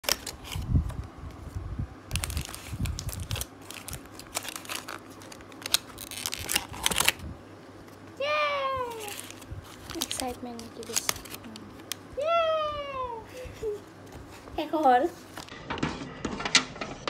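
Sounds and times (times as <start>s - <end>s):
aluminium foil crinkling: 0.0s - 0.7s, 2.1s - 7.2s, 8.8s - 12.1s.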